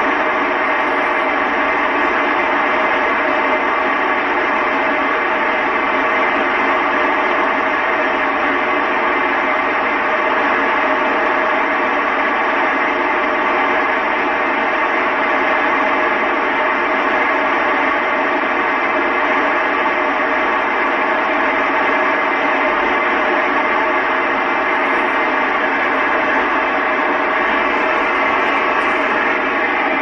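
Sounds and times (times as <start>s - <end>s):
radio static hiss: 24.5s - 30.0s.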